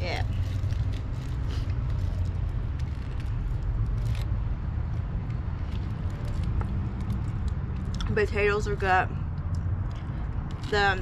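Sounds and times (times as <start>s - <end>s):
low outdoor rumble: 0.0s - 11.0s
foil crackling while chewing: 0.2s - 4.3s.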